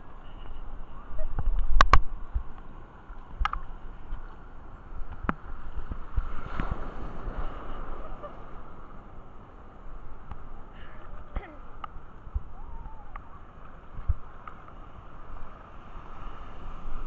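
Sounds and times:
surf sloshing and splashing: 1.1s - 17.0s.

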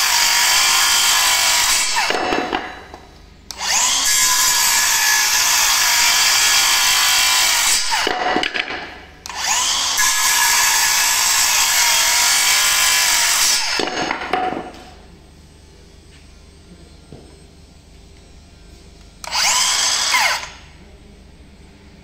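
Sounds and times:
circular saw cutting wood: 0.0s - 2.5s, 3.5s - 8.2s, 9.2s - 14.3s, 19.2s - 20.8s
saw blade winding down: 0.0s - 2.5s, 3.5s - 8.2s, 9.2s - 14.2s, 19.2s - 20.8s.

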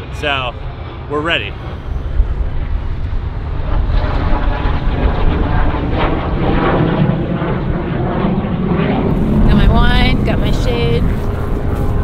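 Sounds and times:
propeller airplane flying overhead: 0.0s - 12.0s.

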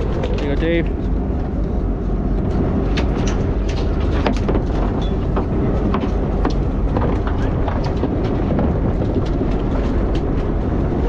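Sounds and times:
boat noise: 0.0s - 11.0s
wind: 0.0s - 11.0s.

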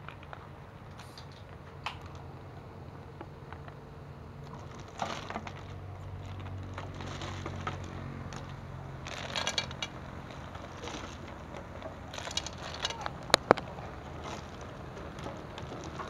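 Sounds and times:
snail shells clattering in a metal pot: 6.4s - 16.0s.

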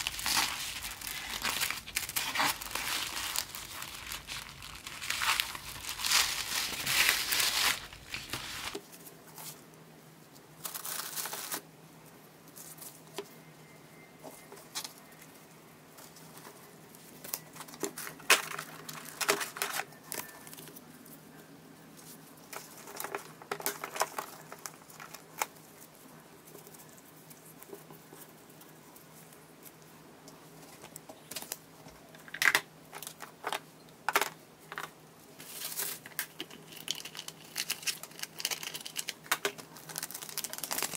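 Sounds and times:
tissue paper crinkling: 0.0s - 8.8s, 35.4s - 40.9s
faint steady hum: 0.0s - 40.9s.

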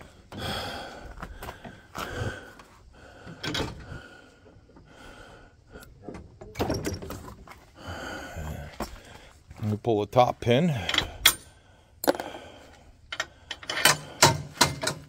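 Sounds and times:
tractor hitch lever knocks and rattles: 3.2s - 4.0s, 6.0s - 7.6s, 10.8s - 12.3s, 13.1s - 15.0s.

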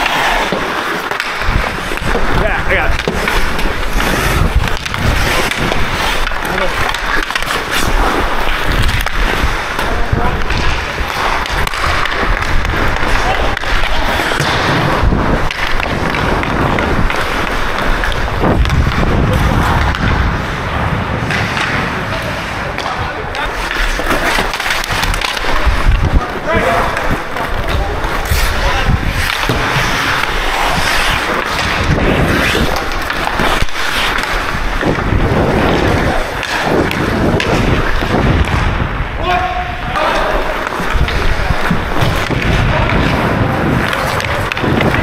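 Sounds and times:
skate blades scraping on ice: 0.0s - 45.0s
wind buffeting microphone: 1.4s - 6.0s, 14.0s - 22.2s, 34.5s - 39.9s
stick and puck knocks: 10.4s - 19.1s, 28.9s - 38.7s.

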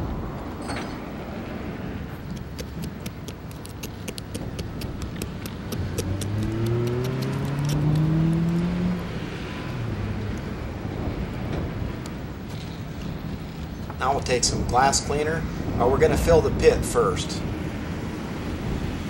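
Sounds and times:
vehicle engine revving: 4.3s - 11.4s.

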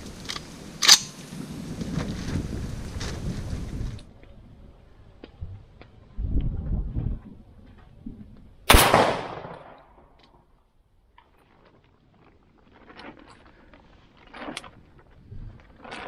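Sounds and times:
campfire crackling: 0.0s - 6.0s, 10.9s - 16.0s
shotgun shot: 8.7s - 9.9s.

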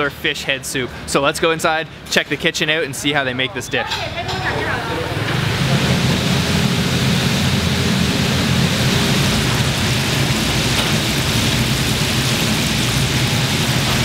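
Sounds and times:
low rumble: 4.6s - 13.8s
oil sizzling in deep fryer: 5.0s - 14.0s.

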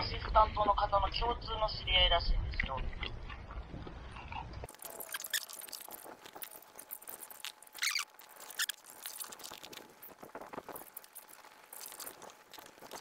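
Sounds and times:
person chewing: 2.5s - 13.0s
short squeaky sounds: 4.8s - 5.9s, 6.6s - 9.5s.

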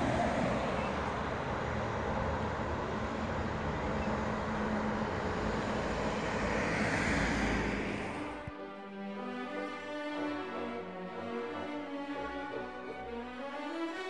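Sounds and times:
car driving past: 0.0s - 8.5s
street traffic: 0.0s - 14.0s.

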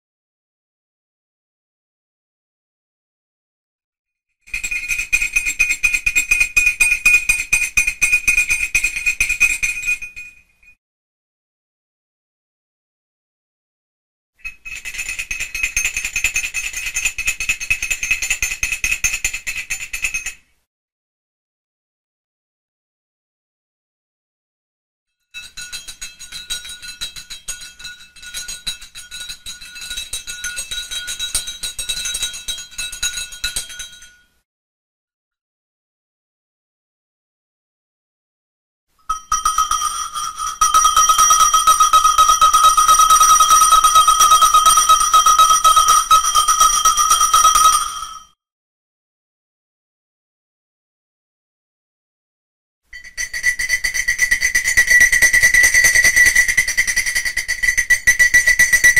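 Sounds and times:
cowbell clanking: 25.4s - 34.3s, 39.1s - 48.3s, 53.0s - 58.9s
bell ringing rapidly: 39.1s - 48.3s.

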